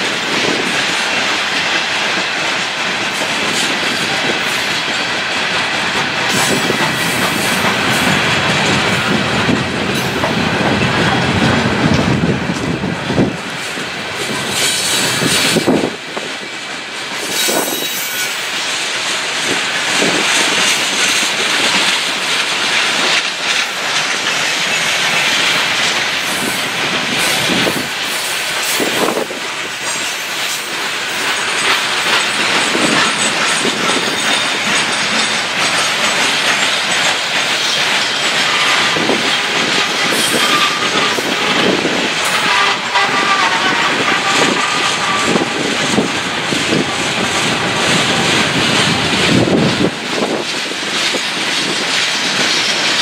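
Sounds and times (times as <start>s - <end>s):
low train rumble: 0.0s - 53.0s
wheels clicking over rail joints: 0.0s - 53.0s
train wheel squeal: 6.3s - 9.2s, 13.5s - 16.2s, 17.1s - 53.0s.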